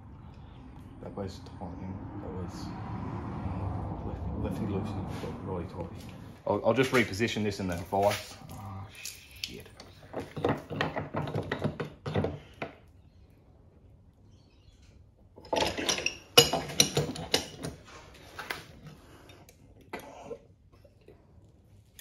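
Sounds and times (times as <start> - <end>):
metallic clanks and knocks: 10.1 - 12.8, 15.4 - 17.8
metal tools clattering: 15.4 - 17.9.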